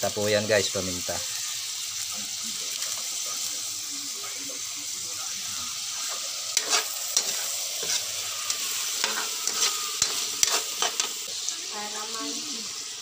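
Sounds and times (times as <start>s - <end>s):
chicken sizzling in oil: 0.0s - 13.0s
metal spoon scraping pan: 6.0s - 11.3s.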